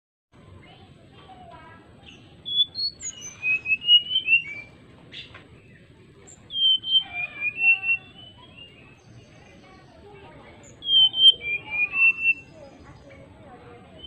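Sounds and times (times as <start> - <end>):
bird fluting whistled song: 2.1 - 5.3, 6.3 - 9.3, 10.6 - 12.8.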